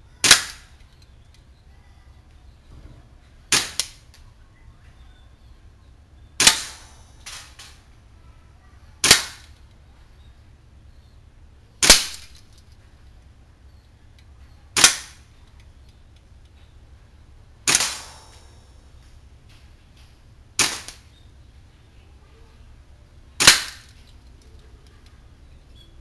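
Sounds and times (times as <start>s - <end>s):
airsoft gun shots: 0.2s - 0.7s, 3.5s - 4.0s, 6.4s - 7.8s, 9.0s - 9.6s, 11.8s - 12.4s, 14.8s - 15.2s, 17.6s - 18.6s, 20.6s - 21.1s, 23.4s - 23.9s.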